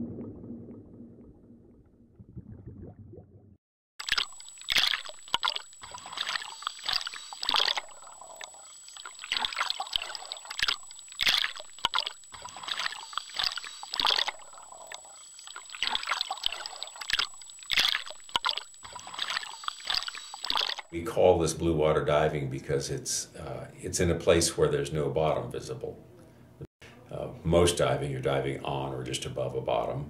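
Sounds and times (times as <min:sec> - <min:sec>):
sea water splashing: 0:00.0 - 0:21.0
thin high whine: 0:04.1 - 0:21.2.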